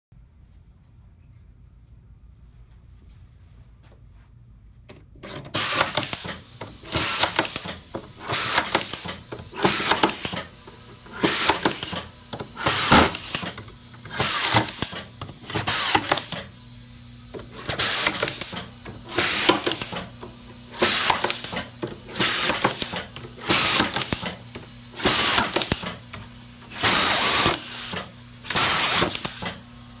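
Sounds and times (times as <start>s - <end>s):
low steady hum: 0.2s - 5.5s
screwdriving machine bursts: 5.4s - 16.5s, 17.6s - 29.6s.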